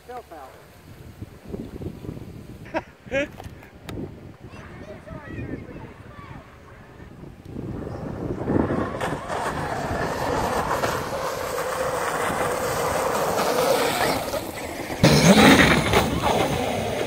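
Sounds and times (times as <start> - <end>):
tyres churning water spray: 8.5 - 17.0.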